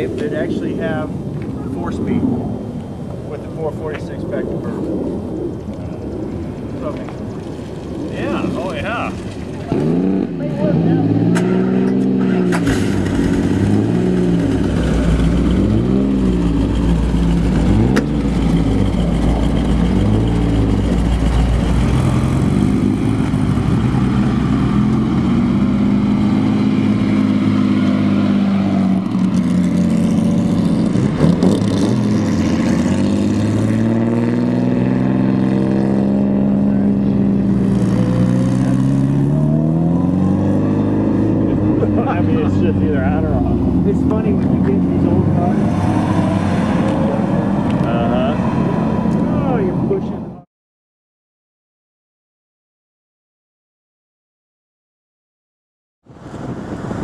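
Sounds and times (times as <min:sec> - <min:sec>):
car engine revving: 0:06.2 - 0:50.3.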